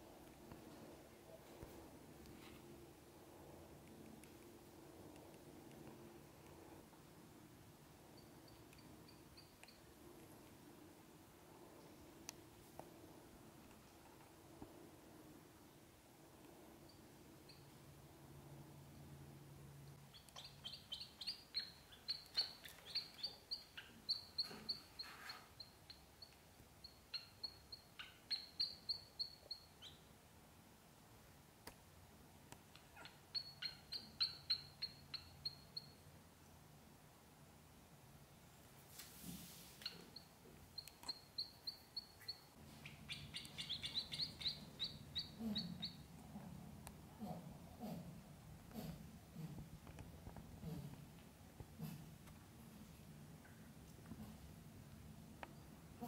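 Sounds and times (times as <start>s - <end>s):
ducklings peeping: 20.1s - 30.0s, 39.8s - 46.1s.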